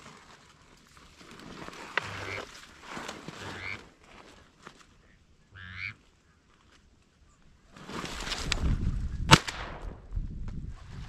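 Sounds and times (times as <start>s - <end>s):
raspy duck quacks: 3.4s - 3.8s, 5.5s - 6.0s.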